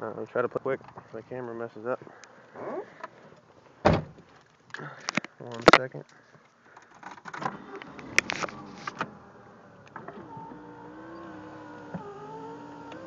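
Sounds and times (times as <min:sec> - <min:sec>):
power window motor whining: 0:07.5 - 0:13.0.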